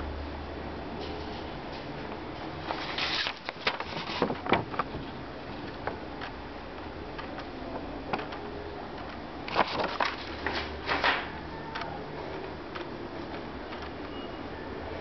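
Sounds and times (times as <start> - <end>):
rustling and knocking: 2.6 - 6.0.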